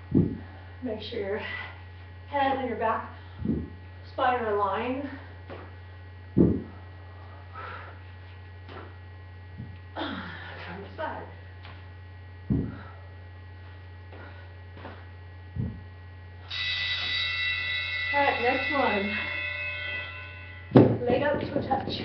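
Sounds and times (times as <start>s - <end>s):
electrical mains hum: 0.0s - 22.0s
dull thumps on concrete floor: 20.8s - 22.0s.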